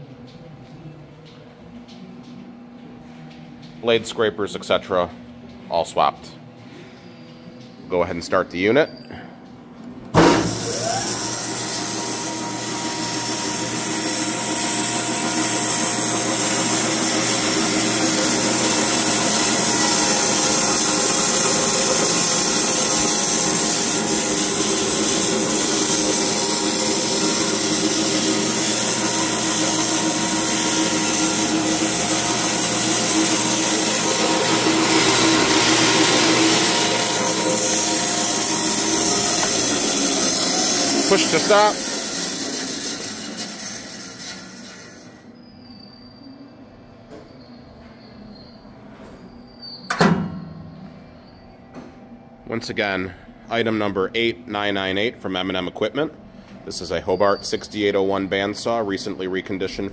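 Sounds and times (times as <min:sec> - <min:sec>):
band saw motor whirring: 0:10.2 - 0:45.2
saw blade hiss: 0:10.2 - 0:45.2.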